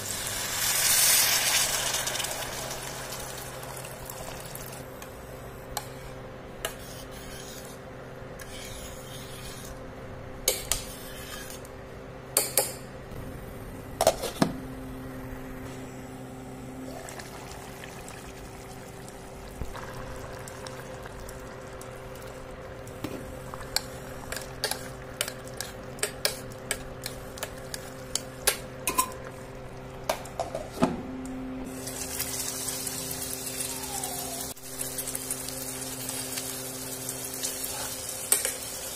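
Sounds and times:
sizzling hiss: 0:00.0 - 0:04.2
steady hum: 0:00.0 - 0:38.9.

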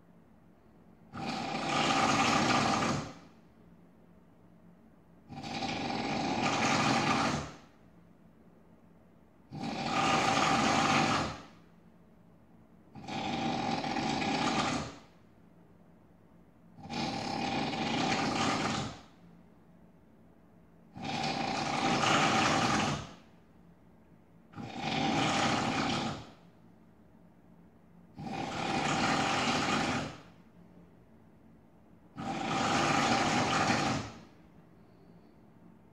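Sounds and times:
person snoring loudly: 0:01.1 - 0:03.2, 0:05.3 - 0:07.7, 0:09.5 - 0:11.5, 0:13.0 - 0:15.1, 0:16.8 - 0:19.0, 0:21.0 - 0:23.2, 0:24.6 - 0:26.4, 0:28.2 - 0:30.3, 0:32.2 - 0:34.3.

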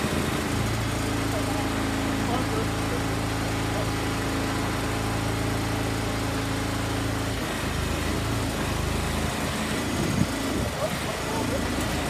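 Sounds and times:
small engine idling: 0:00.0 - 0:12.0.

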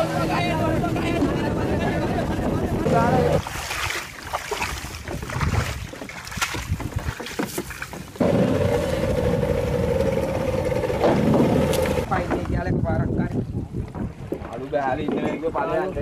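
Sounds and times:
boat engine droning: 0:00.0 - 0:05.3, 0:07.9 - 0:12.3.

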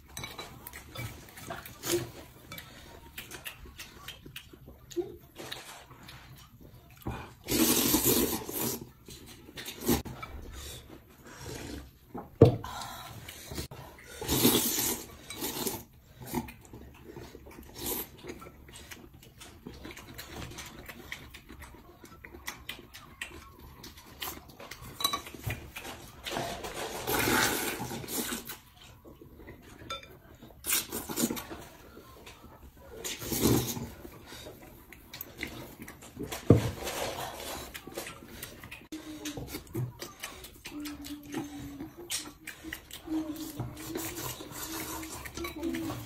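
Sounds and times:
chopsticks clinking on bowls: 0:00.0 - 0:04.6, 0:23.3 - 0:26.8
chewing and smacking: 0:00.0 - 0:46.0
slurping noodles: 0:07.3 - 0:10.1, 0:10.7 - 0:12.0, 0:13.4 - 0:18.2, 0:26.2 - 0:28.6, 0:33.0 - 0:34.6.

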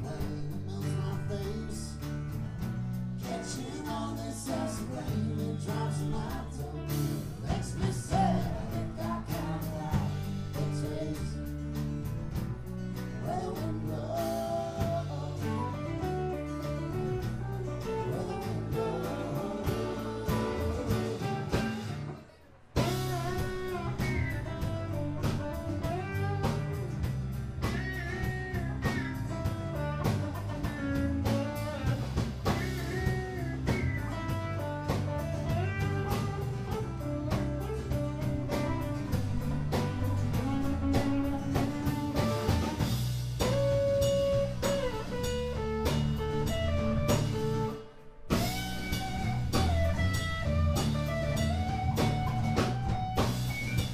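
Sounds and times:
drum kit: 0:00.0 - 0:53.9
electric and acoustic guitars: 0:00.0 - 0:53.9
electric bass: 0:00.0 - 0:53.9.

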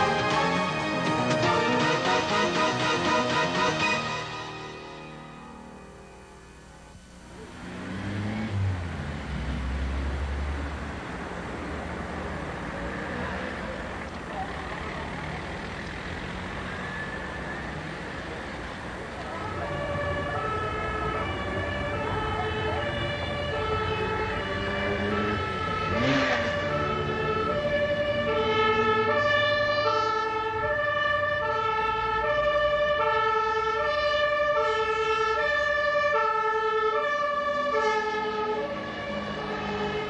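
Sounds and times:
two-tone siren: 0:00.0 - 0:06.8, 0:16.3 - 0:40.0.

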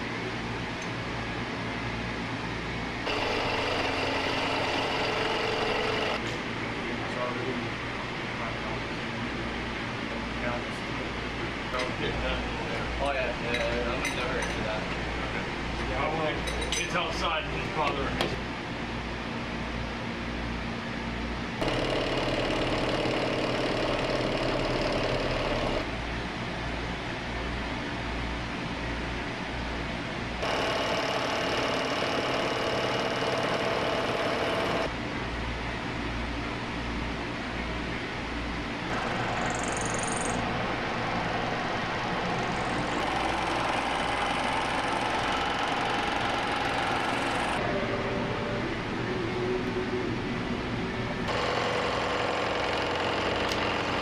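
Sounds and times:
low shop hum: 0:00.0 - 0:54.0
milling machine running: 0:03.0 - 0:06.5, 0:21.6 - 0:25.9, 0:30.4 - 0:34.9, 0:38.9 - 0:49.6, 0:50.3 - 0:54.0
milling machine cutting metal: 0:03.1 - 0:06.2, 0:42.4 - 0:47.6, 0:51.3 - 0:54.0.

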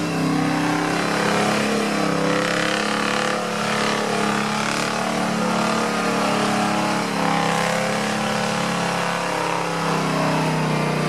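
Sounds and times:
truck engine running: 0:00.0 - 0:11.0.

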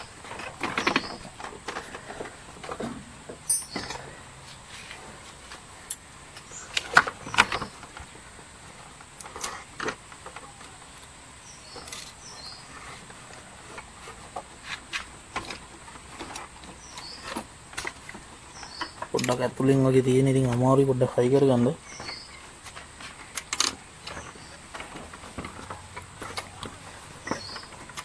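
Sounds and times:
metal parts clicking and clinking: 0:03.4 - 0:04.1, 0:05.8 - 0:07.6, 0:18.8 - 0:19.6, 0:23.3 - 0:28.0.

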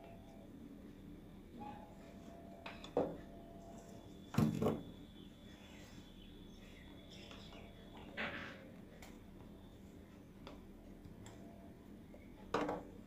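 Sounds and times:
faint steady hum: 0:00.0 - 0:13.0
clatter on a workbench: 0:12.5 - 0:13.0.

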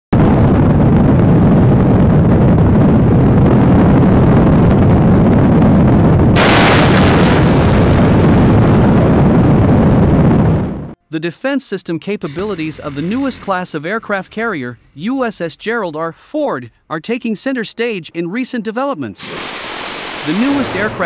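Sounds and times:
wind on microphone: 0:00.2 - 0:11.0
missile launch rushing blast: 0:05.2 - 0:10.9, 0:19.2 - 0:21.0.

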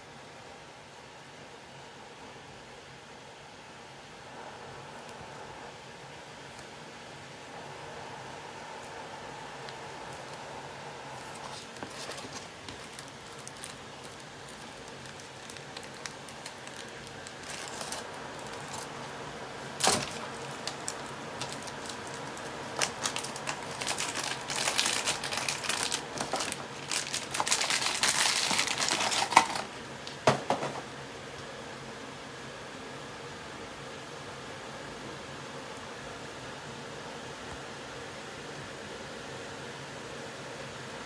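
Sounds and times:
plastic bag crinkling: 0:11.2 - 0:29.8.

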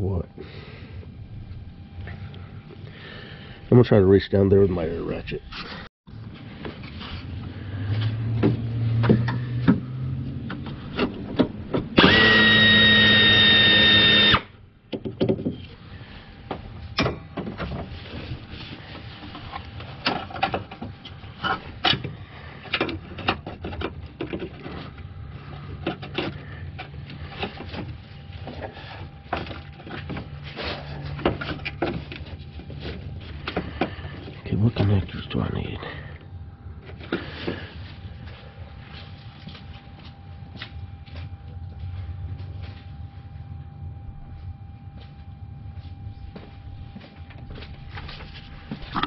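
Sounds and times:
air ratchet hissing and whining: 0:12.0 - 0:14.5.

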